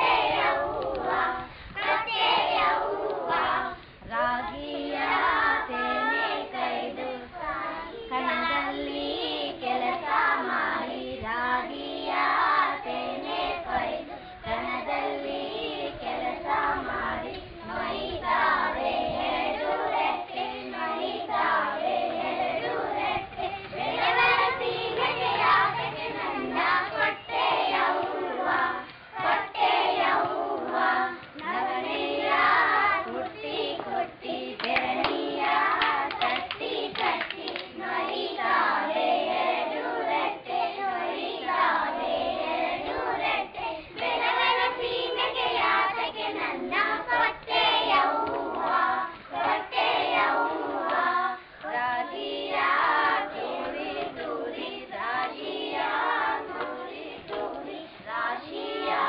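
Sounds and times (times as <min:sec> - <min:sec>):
children singing: 0:00.0 - 0:59.0
children clapping hands: 0:34.6 - 0:38.2, 0:48.2 - 0:48.8.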